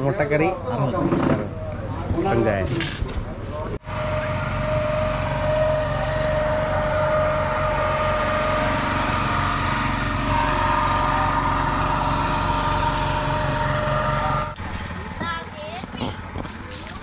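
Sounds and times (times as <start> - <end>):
small outboard motor running: 3.8 - 17.0.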